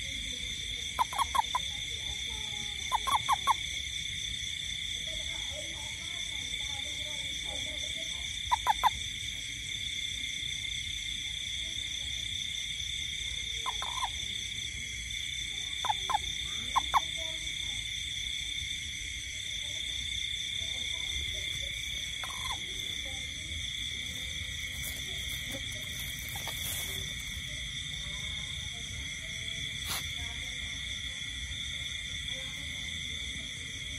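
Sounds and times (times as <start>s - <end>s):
frog chorus: 0.0s - 33.9s
loud frog chirps: 0.6s - 4.1s, 8.2s - 9.4s, 13.5s - 19.3s, 20.1s - 30.2s.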